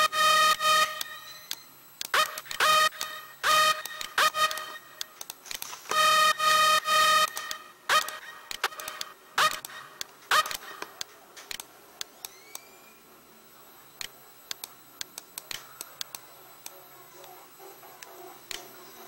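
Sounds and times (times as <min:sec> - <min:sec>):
computer mouse clicking: 0:03.8 - 0:05.8, 0:07.2 - 0:12.7, 0:14.0 - 0:17.4.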